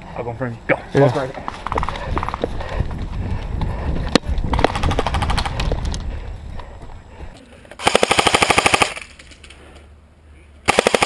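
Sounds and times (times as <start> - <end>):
wind on the microphone: 1.5 - 7.3
airsoft gun firing rapid shots: 4.5 - 5.6, 7.8 - 9.2, 10.7 - 11.0.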